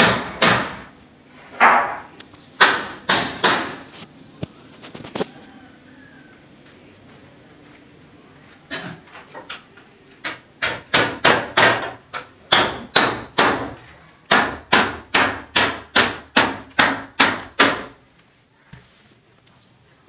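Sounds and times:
hammer nailing into ceiling: 0.0s - 0.9s, 2.6s - 3.9s, 10.2s - 18.0s.

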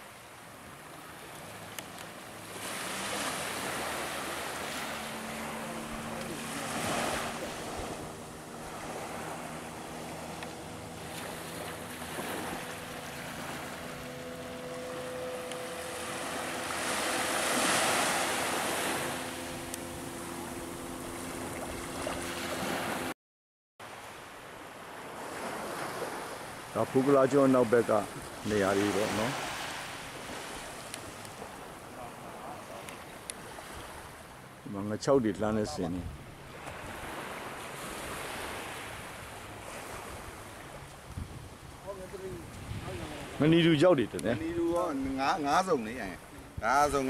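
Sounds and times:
motorboat engine hum: 0.0s - 23.1s, 23.9s - 47.0s
waves washing onto beach: 0.0s - 23.1s, 23.8s - 47.0s
wind on microphone: 35.8s - 43.4s.

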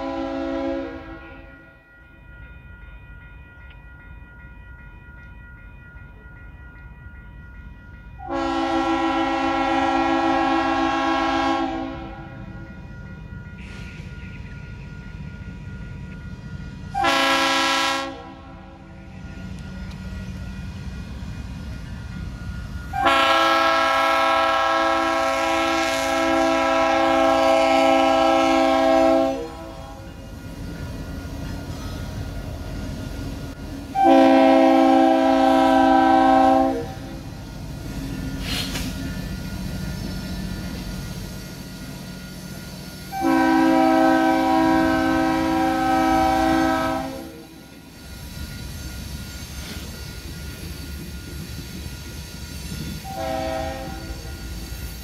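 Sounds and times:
train air horn blasts: 0.0s - 1.6s, 8.2s - 12.5s, 16.9s - 19.0s, 22.9s - 30.2s, 33.9s - 37.3s, 43.1s - 47.6s, 53.0s - 54.4s
train rumbling: 0.0s - 55.0s.

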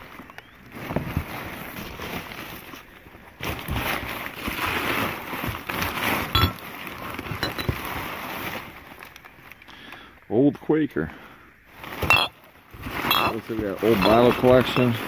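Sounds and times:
newspaper rustling and crinkling: 0.0s - 9.6s, 11.7s - 15.0s
glass bottles clinking: 6.3s - 6.6s, 7.2s - 7.8s, 12.0s - 12.4s, 13.0s - 14.8s.

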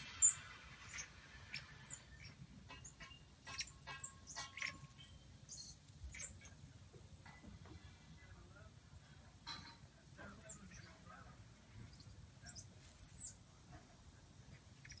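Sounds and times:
monkey high-pitched whistled peeps: 0.0s - 6.6s, 12.5s - 13.4s, 14.8s - 15.0s.

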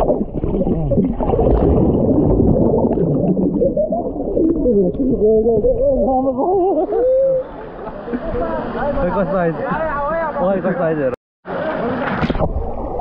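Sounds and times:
muffled gurgling underwater: 0.0s - 7.6s
warbling voice-like tones: 0.0s - 7.6s.

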